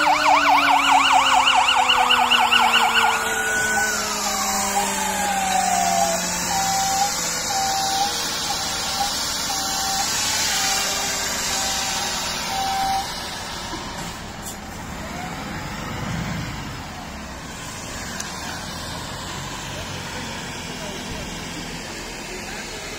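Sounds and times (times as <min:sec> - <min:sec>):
truck engine running: 0:00.0 - 0:22.9
short beeps: 0:06.5 - 0:13.1.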